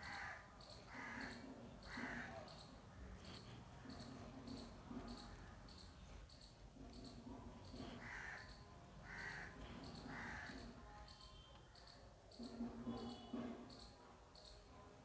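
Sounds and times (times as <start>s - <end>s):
short harsh bird calls: 0.0s - 14.6s
faint high chirp: 11.0s - 14.7s.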